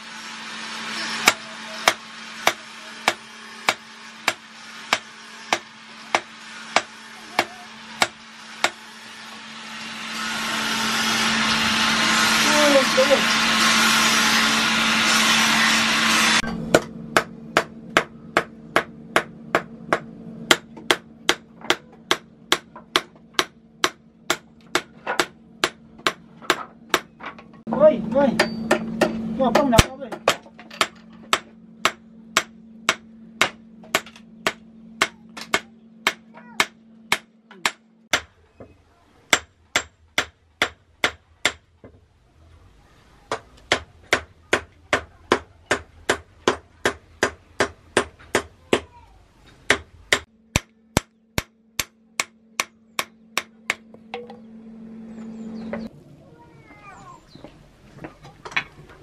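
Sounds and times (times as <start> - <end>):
hammer blows ringing on anvil: 28.3 - 38.3.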